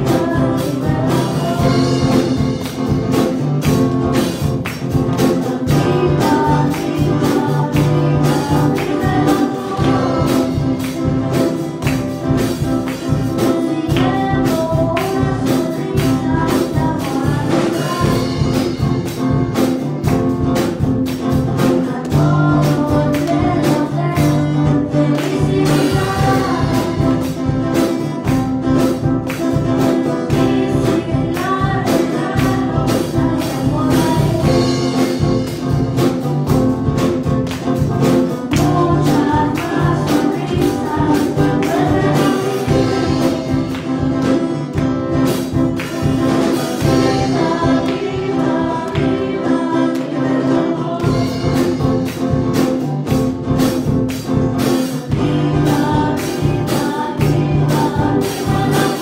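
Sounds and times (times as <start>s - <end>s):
girl singing into a microphone: 0.0s - 2.4s, 5.2s - 11.5s, 12.4s - 18.8s, 21.6s - 28.9s, 29.8s - 35.1s, 38.5s - 44.3s, 55.2s - 59.0s
backing track with steady beat: 0.0s - 59.0s.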